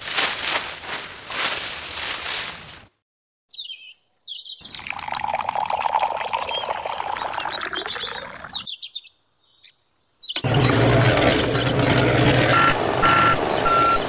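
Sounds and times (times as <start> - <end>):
birds chirping: 3.5 - 14.0
water trickling into powder: 4.6 - 8.6.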